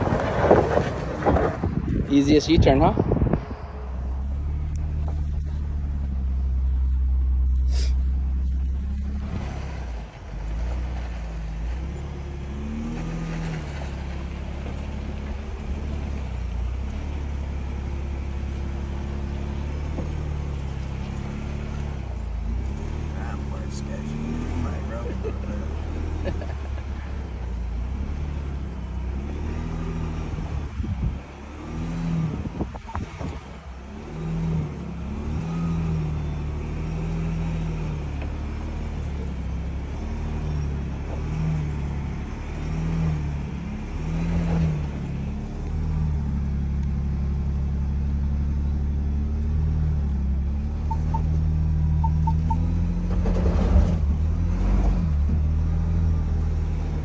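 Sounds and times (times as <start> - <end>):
car engine at low revs: 0.0 - 57.0
faint short beeps: 50.8 - 51.4, 52.0 - 52.8.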